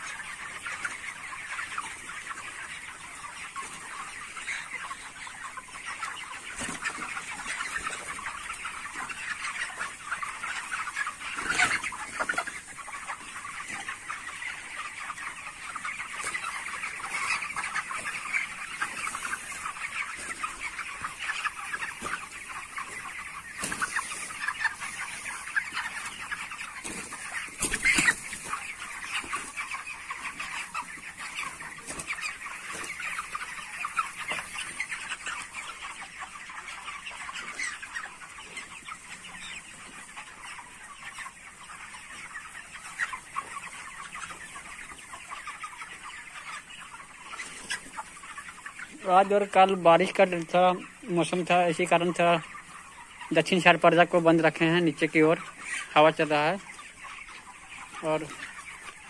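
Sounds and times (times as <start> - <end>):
chickens clucking and peeping: 0.0 - 59.0.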